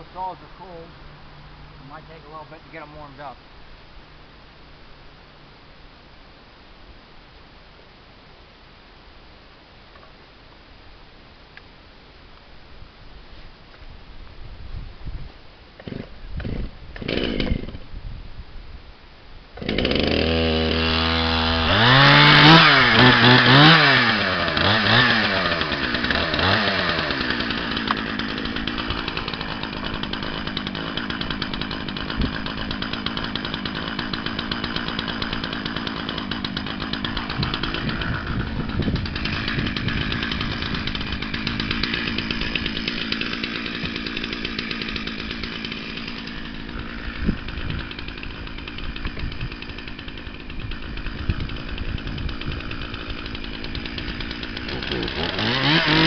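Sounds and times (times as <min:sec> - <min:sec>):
chainsaw idling and revving: 0:01.6 - 0:03.4, 0:15.8 - 0:17.9, 0:19.6 - 0:56.0
chainsaw pull-start: 0:15.8 - 0:17.9, 0:19.6 - 0:56.0.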